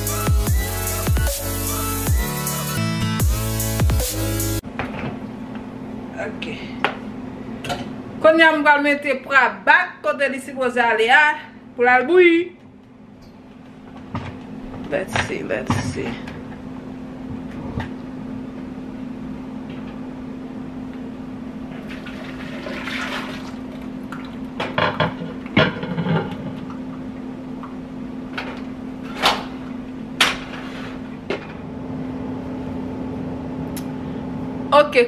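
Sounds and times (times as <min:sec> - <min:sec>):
steady low hum: 0:04.6 - 0:35.0
liquid pouring into a pot: 0:21.8 - 0:24.4.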